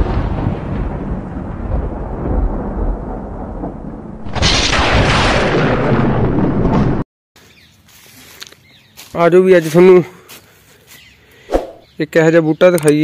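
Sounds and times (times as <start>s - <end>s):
deep thunder-like rumble: 0.0s - 7.0s
loud rushing blast: 4.1s - 7.0s.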